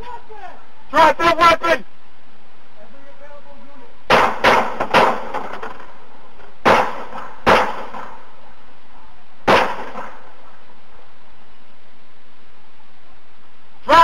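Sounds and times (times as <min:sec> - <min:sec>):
gunshots with echo: 0:06.6 - 0:08.2, 0:09.5 - 0:10.2.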